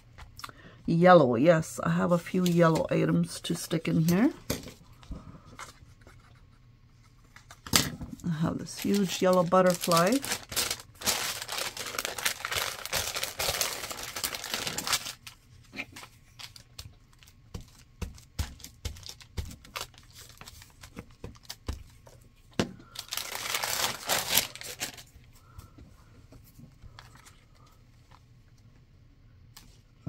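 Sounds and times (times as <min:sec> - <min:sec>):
paper rustling and crinkling: 0:05.0 - 0:25.7.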